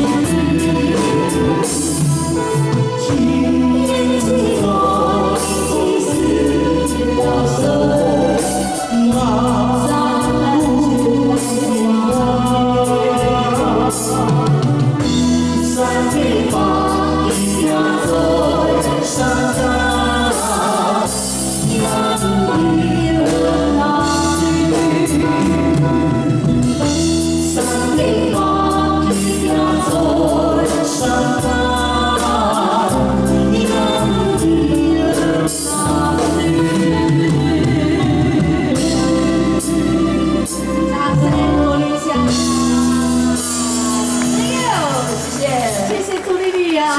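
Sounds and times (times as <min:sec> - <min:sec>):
woman singing: 0:00.0 - 0:26.1, 0:27.5 - 0:46.9
man singing: 0:00.0 - 0:26.3
bass guitar: 0:00.0 - 0:46.0
drums: 0:00.0 - 0:46.9
electric guitar: 0:00.0 - 0:46.9.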